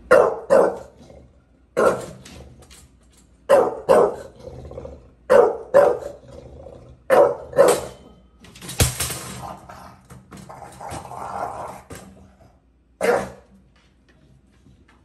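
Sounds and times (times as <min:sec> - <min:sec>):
dog barking: 0:00.0 - 0:00.9, 0:01.8 - 0:02.1, 0:03.5 - 0:04.3, 0:05.3 - 0:06.2, 0:07.1 - 0:08.0, 0:13.0 - 0:13.5
gate clattering onto wooden floor: 0:07.6 - 0:12.2.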